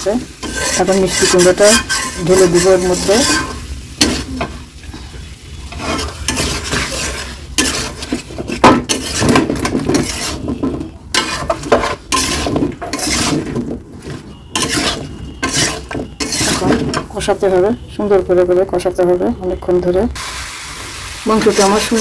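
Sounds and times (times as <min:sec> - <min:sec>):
metal spatula scraping a pan: 0:00.0 - 0:17.5
food sizzling: 0:00.0 - 0:18.6, 0:20.2 - 0:22.0.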